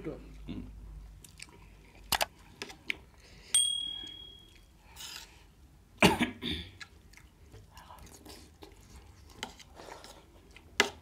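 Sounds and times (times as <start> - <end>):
metal spoon clinking on plate: 3.5 - 4.6.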